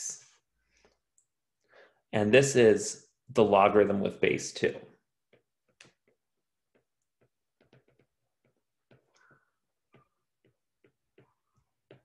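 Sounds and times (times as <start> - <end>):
stylus tapping on glass screen: 5.2 - 12.0.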